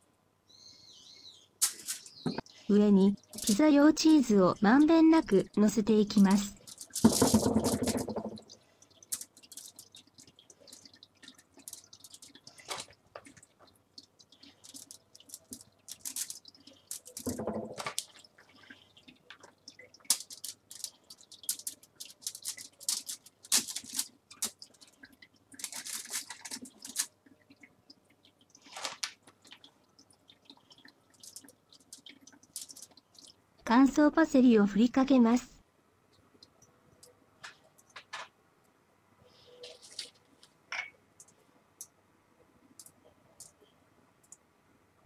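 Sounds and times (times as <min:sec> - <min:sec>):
plastic bag crinkling: 0:01.6 - 0:02.2, 0:03.2 - 0:05.5, 0:06.1 - 0:13.5, 0:14.4 - 0:18.3, 0:19.4 - 0:27.2, 0:28.6 - 0:29.7, 0:31.2 - 0:33.3, 0:39.6 - 0:40.5.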